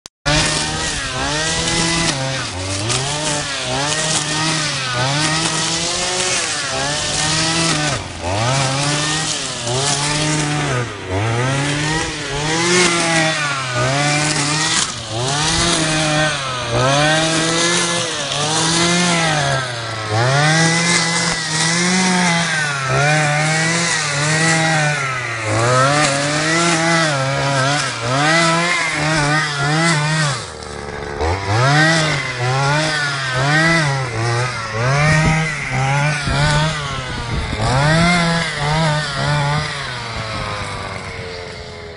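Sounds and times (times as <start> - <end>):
brush cutter engine revving: 0.3 - 41.9.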